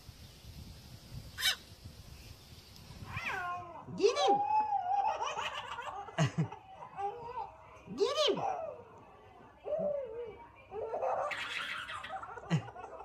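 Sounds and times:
baby squealing and laughing: 0:01.4 - 0:01.6, 0:10.9 - 0:12.5.

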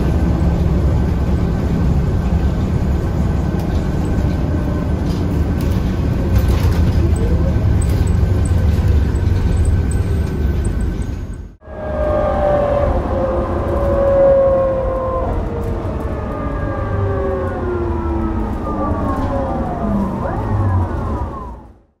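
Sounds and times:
bus engine and road rumble: 0:00.0 - 0:22.0.

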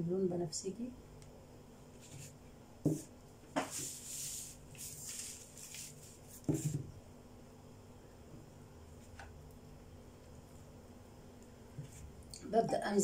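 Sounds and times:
rustling: 0:03.6 - 0:06.8.

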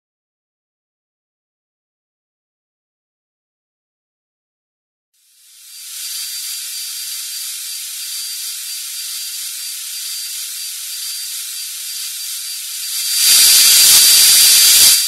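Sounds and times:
power drill hiss and whine: 0:05.2 - 0:15.0.

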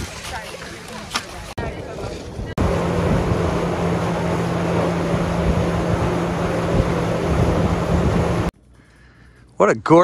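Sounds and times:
chairlift machinery humming: 0:02.6 - 0:08.5.

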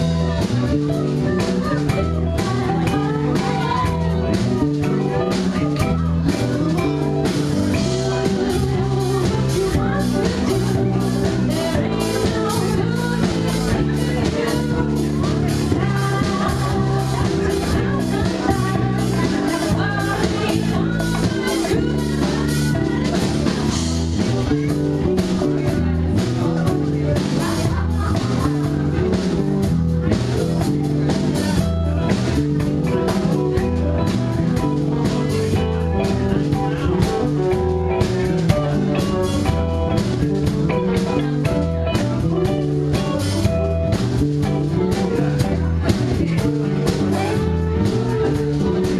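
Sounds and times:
bass guitar: 0:00.0 - 0:48.9
electric guitar: 0:00.0 - 0:48.9
live band playing: 0:00.0 - 0:48.9
person singing: 0:00.0 - 0:48.9
steady drum beat: 0:00.0 - 0:48.9.

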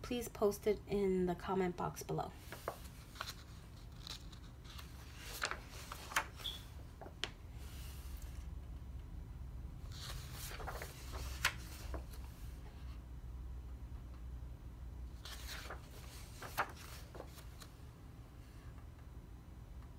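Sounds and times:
book pages being turned: 0:02.4 - 0:08.4, 0:09.9 - 0:12.8, 0:15.2 - 0:17.8
paper crinkles and taps: 0:15.3 - 0:17.6.

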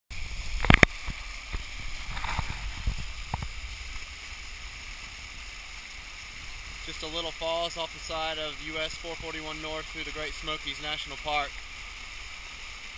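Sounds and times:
waterfall rushing over rocks: 0:00.1 - 0:12.9.

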